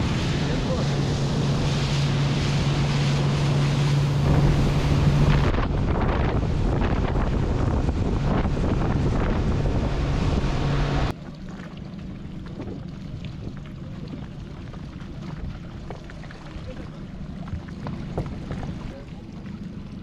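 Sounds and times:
wind buffeting microphone: 0:00.0 - 0:11.1, 0:12.2 - 0:20.0
boat engine drone: 0:00.0 - 0:20.0
water rushing past hull: 0:00.0 - 0:20.0.

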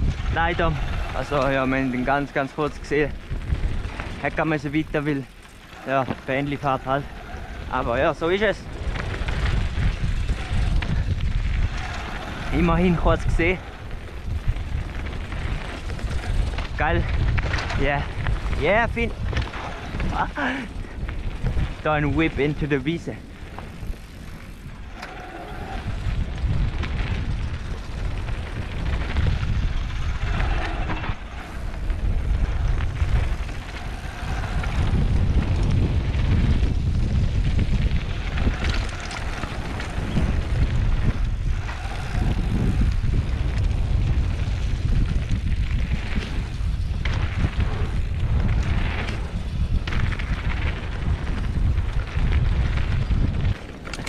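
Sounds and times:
bike clicks and clatter: 0:00.0 - 0:54.0
wind buffeting microphone: 0:00.0 - 0:54.0.

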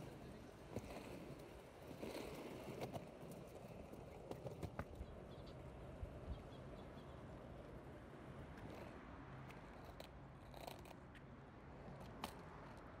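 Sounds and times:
skateboard wheels rolling on asphalt: 0:00.0 - 0:13.0.

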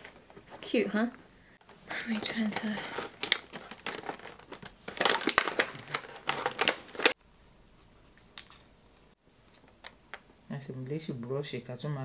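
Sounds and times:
handling clicks and crinkles: 0:01.6 - 0:07.2.

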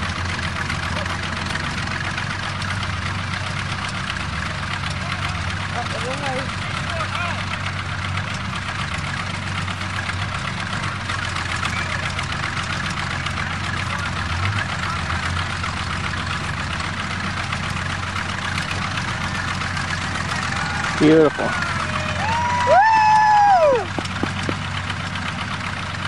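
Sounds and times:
bulldozer engine running under load: 0:00.0 - 0:26.0.

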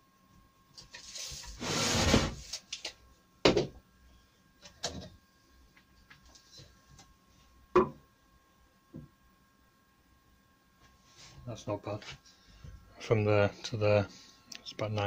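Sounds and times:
tools knocking on wooden workbench: 0:07.8 - 0:08.0.

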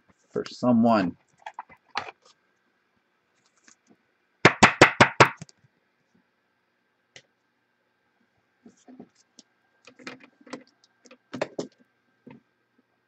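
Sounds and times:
sharp knocks on hard surface: 0:04.5 - 0:05.4.

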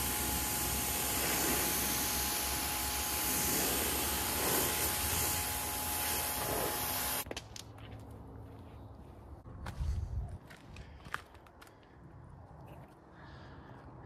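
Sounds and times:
hose spraying water on car: 0:00.0 - 0:07.2.

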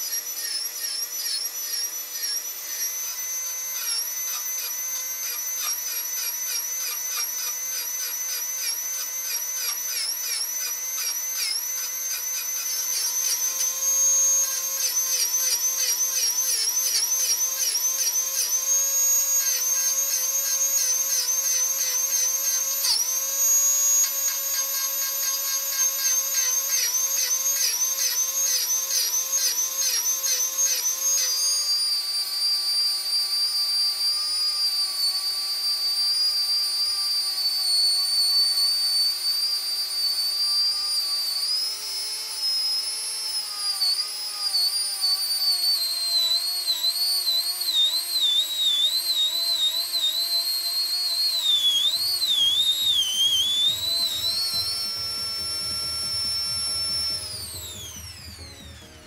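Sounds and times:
rotary tool grinding steel: 0:00.0 - 0:59.0.

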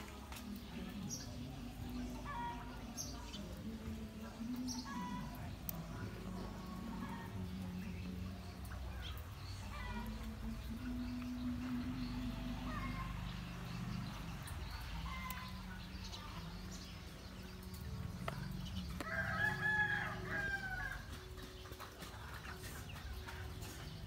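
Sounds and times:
rooster crowing: 0:19.0 - 0:21.0.

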